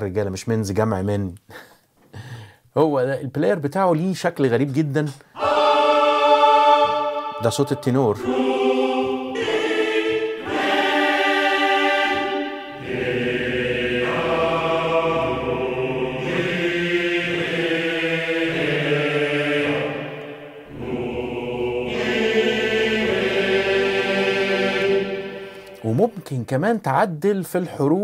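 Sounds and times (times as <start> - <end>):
men's choir singing held chords: 5.4 - 25.9.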